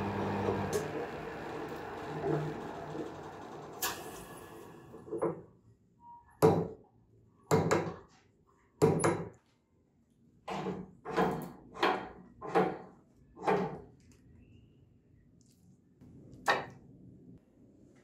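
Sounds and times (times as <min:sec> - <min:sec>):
wood lathe running down: 0:00.0 - 0:05.0.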